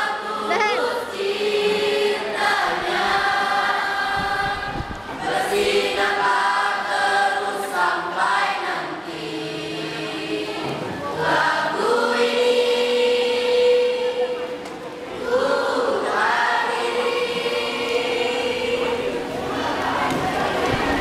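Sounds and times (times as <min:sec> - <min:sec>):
mixed choir singing pop song: 0:00.0 - 0:21.0.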